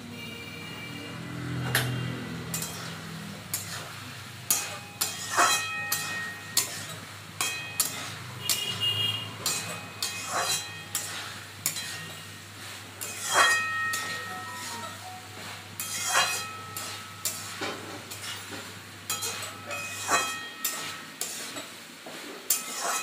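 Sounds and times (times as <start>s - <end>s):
metal spatula clinking on pan: 1.8s - 3.8s, 4.4s - 8.8s, 9.4s - 12.3s, 13.0s - 14.8s, 15.8s - 18.4s, 19.1s - 21.5s, 22.5s - 23.0s.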